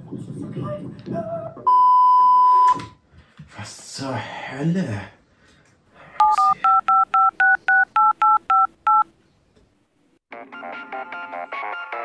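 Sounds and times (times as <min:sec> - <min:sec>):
phone keypad dialing beeps: 0:06.2 - 0:09.1.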